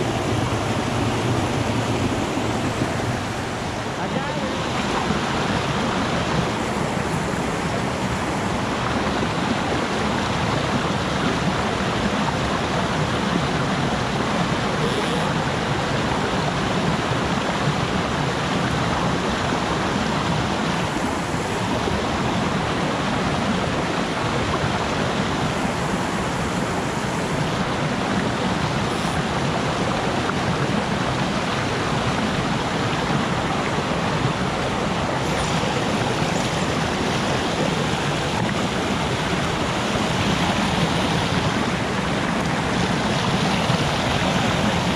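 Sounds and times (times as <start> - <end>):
stream rushing over rocks: 0.0 - 44.9.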